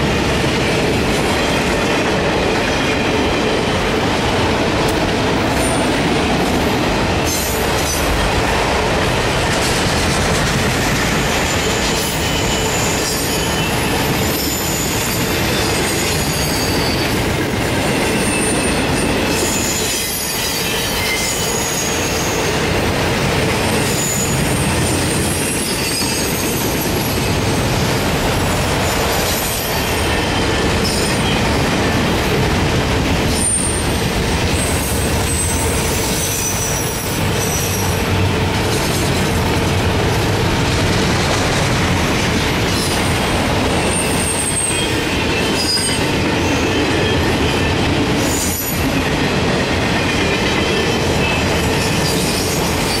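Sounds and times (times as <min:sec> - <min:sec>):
train wheels rumbling on rail: 0:00.0 - 0:53.0
wheel squeals: 0:17.8 - 0:22.4, 0:23.8 - 0:27.2.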